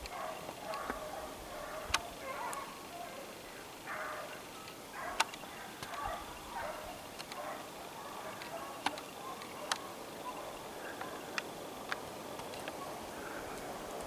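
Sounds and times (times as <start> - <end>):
hounds baying and yelping: 0.0 - 11.6, 12.4 - 13.8
sharp clicks: 4.6 - 6.0, 7.1 - 7.5, 8.4 - 9.9.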